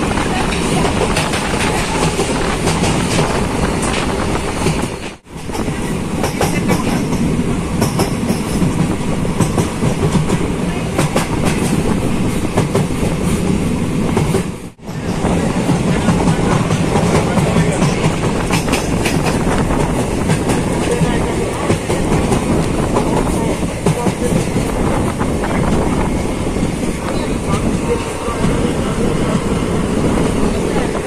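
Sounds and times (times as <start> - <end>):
wheels clacking over rail joints: 0.0 - 11.8, 14.2 - 26.0
train rumbling: 0.0 - 31.0.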